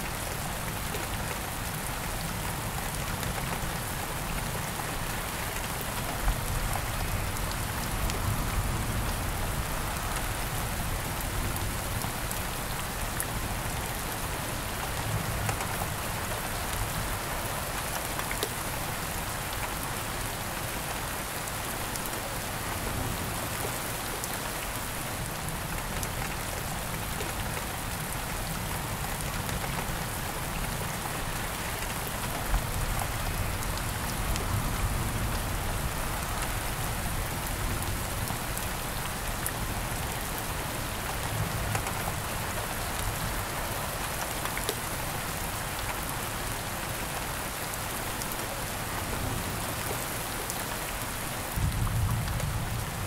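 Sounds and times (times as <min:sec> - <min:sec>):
steady rain falling: 0:00.0 - 0:53.0.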